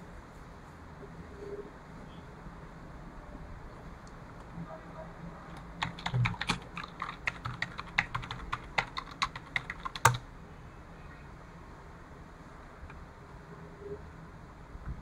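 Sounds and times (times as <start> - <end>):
computer keyboard typing: 5.5 - 10.3.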